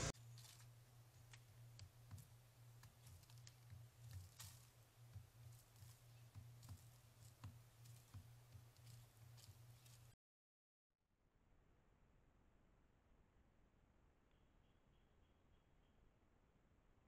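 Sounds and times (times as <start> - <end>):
steady low hum: 0.0 - 10.1
woodpecker tapping on wood: 1.2 - 10.0.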